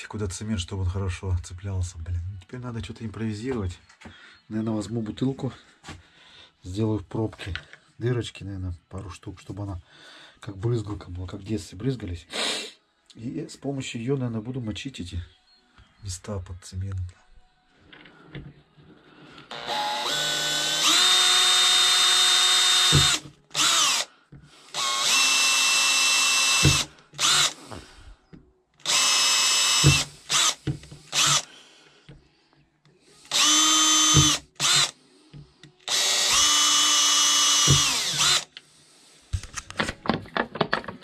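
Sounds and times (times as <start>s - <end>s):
cordless drill motor whine: 19.5s - 24.1s, 24.7s - 27.6s, 28.8s - 31.5s, 33.3s - 35.0s, 35.8s - 38.5s.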